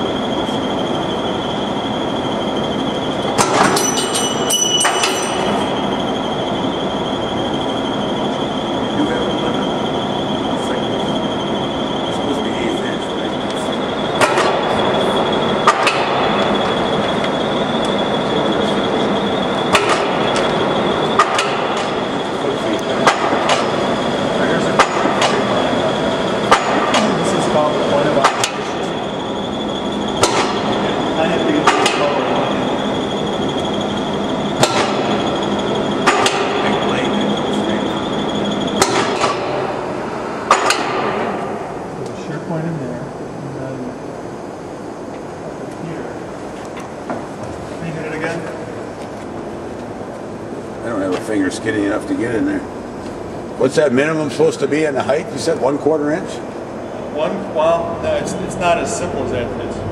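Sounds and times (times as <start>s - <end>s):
power shear running with whine: 0.0s - 59.9s
shop machinery hum: 0.0s - 59.9s
sharp metallic clanks: 3.3s - 5.8s, 15.6s - 16.7s, 19.7s - 22.0s, 26.4s - 27.4s, 30.2s - 32.5s, 34.6s - 35.4s, 36.0s - 37.0s, 38.0s - 41.8s.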